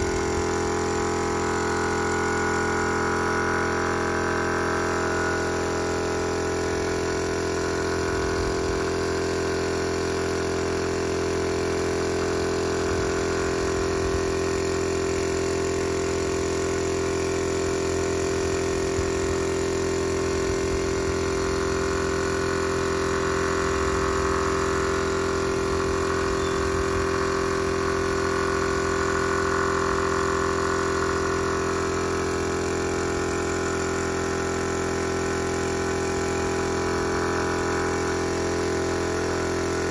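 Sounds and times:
spray gun hissing: 0.0 - 9.0, 19.0 - 39.9
air compressor humming: 0.0 - 39.9.

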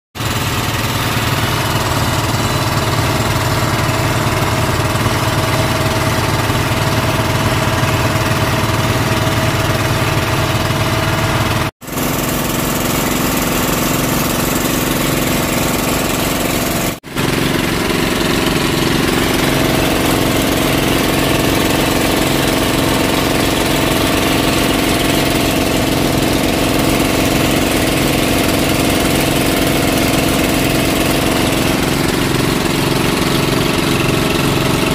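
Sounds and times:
boat engine running: 0.2 - 34.9.

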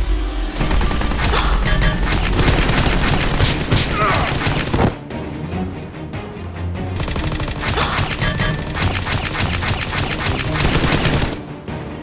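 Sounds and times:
background music: 0.0 - 12.0
gunfire sound effects: 0.6 - 5.0, 7.0 - 11.4.

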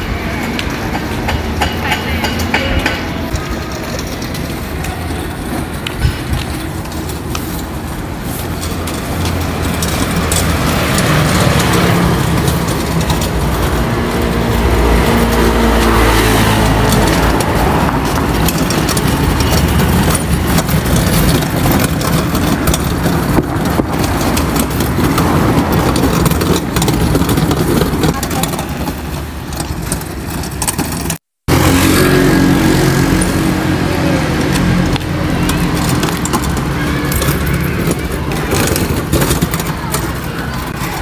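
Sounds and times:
hand cart wheels rattling on asphalt: 0.0 - 41.0
books and box clattering: 32.6 - 41.0.

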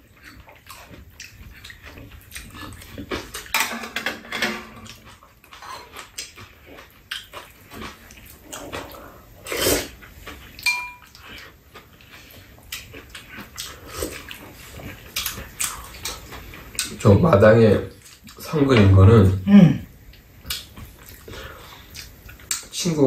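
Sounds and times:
chewing and slurping: 0.0 - 3.6, 4.7 - 17.0, 20.1 - 22.7
spoon ringing against bowl: 10.6 - 11.0.

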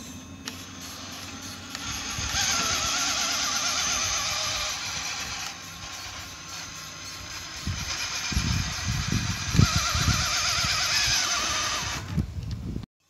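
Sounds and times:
electric motor whining: 0.0 - 12.6.

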